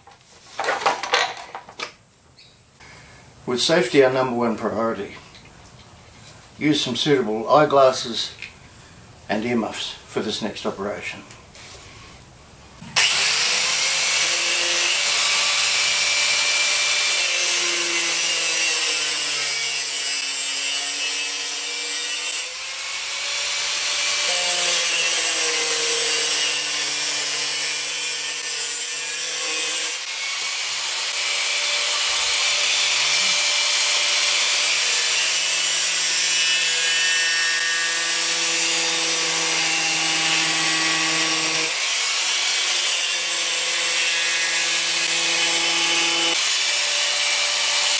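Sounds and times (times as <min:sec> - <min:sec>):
angle grinder cutting screen: 0:13.0 - 0:47.9.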